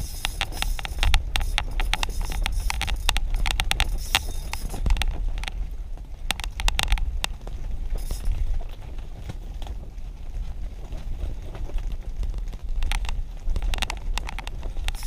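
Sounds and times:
fishing reel clicking: 0.0s - 5.5s, 8.0s - 8.4s, 12.9s - 15.0s
steady low rumble: 0.0s - 15.0s.

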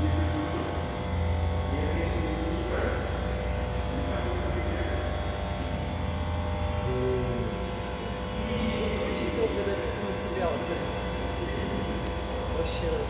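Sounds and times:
constant hum: 0.0s - 13.0s
faint indistinct voices: 0.0s - 13.0s.

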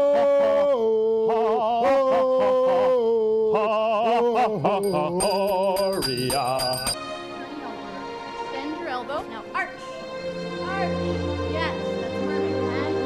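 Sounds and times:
two men singing: 0.0s - 7.0s
handbell ringing: 4.8s - 7.0s.

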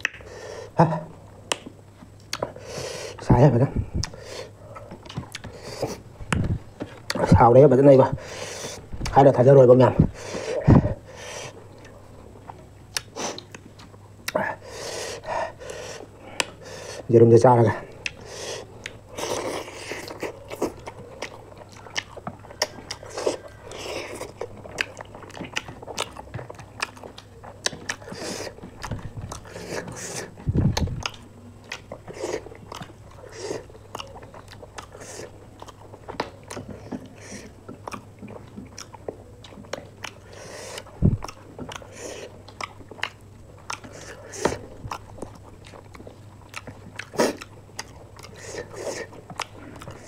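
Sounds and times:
wet mouth clicks and smacks: 0.0s - 0.3s
crunchy bites and chewing: 17.8s - 50.0s.

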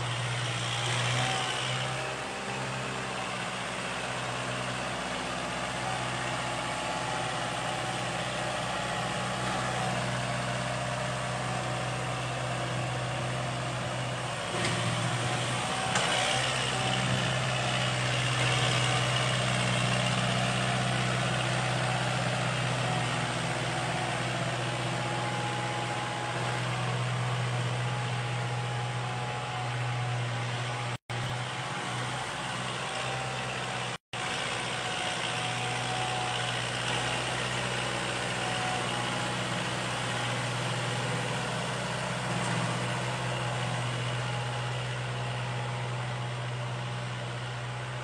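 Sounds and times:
tractor diesel engine running: 0.0s - 48.0s.

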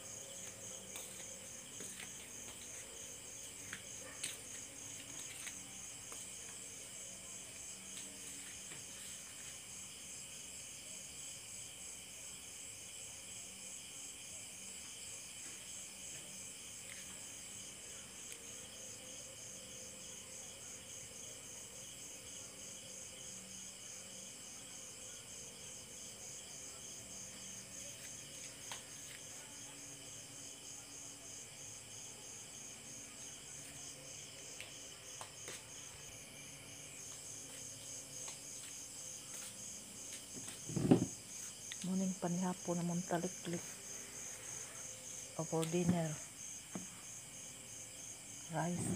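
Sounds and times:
crickets chirping: 0.0s - 48.9s.

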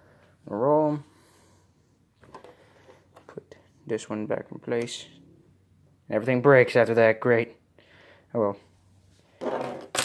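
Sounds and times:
plastic ball rolling on tabletop: 9.4s - 10.0s.

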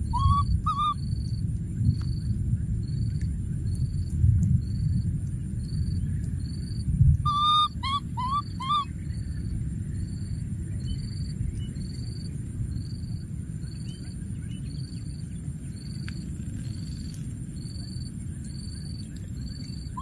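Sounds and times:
short high rising calls: 0.0s - 1.0s, 7.3s - 8.9s.

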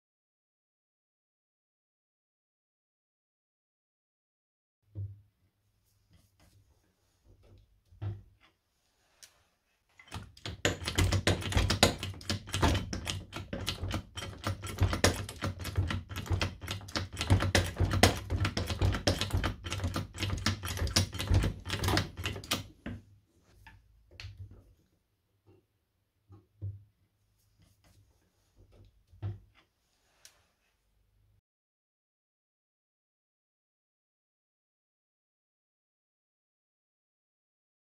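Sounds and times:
floor jack pump clicking: 10.0s - 23.0s.

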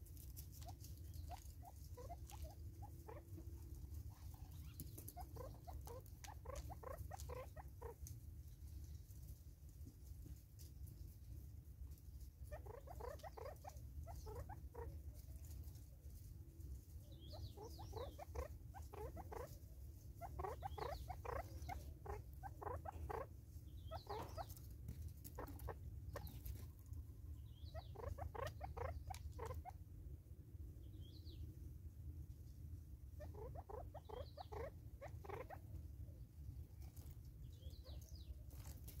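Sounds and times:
low steady rumble: 28.9s - 33.3s.

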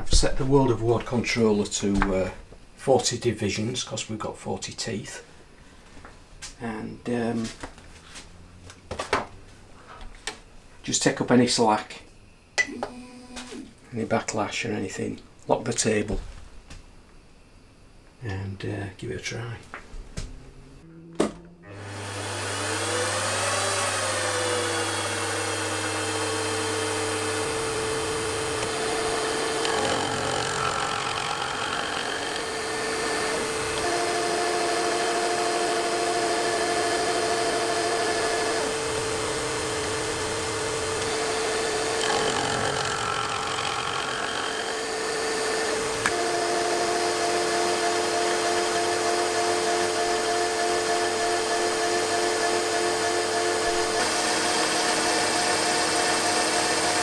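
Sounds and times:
gear cutter cutting metal: 21.7s - 48.9s
milling machine spindle running: 21.7s - 57.0s.

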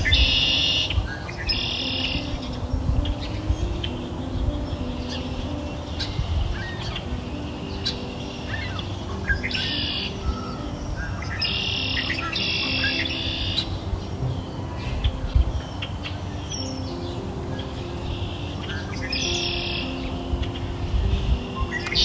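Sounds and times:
soft background music: 0.0s - 22.0s
songbirds chirping and trilling: 0.0s - 22.0s.

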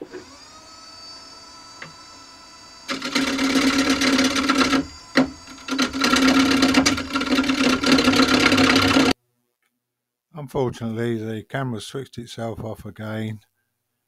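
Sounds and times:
lathe motor hum: 0.0s - 9.2s
turning tool scraping wood: 2.8s - 9.2s.

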